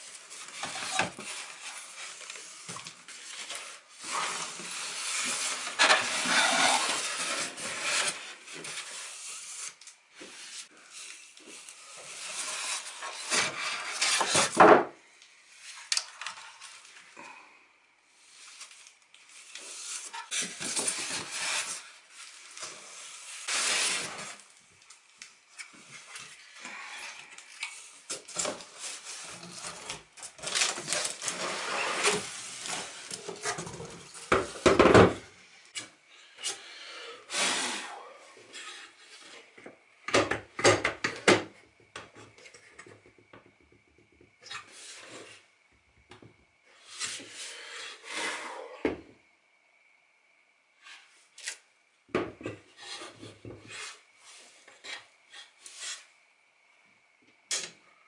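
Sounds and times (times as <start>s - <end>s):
foam and cardboard scraping: 0.0s - 14.8s, 19.3s - 24.4s, 27.8s - 35.1s.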